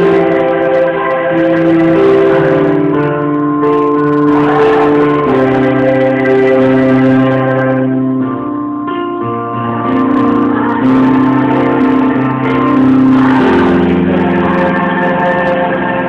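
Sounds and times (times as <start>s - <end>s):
keyboard playing held chords: 0.0s - 16.0s.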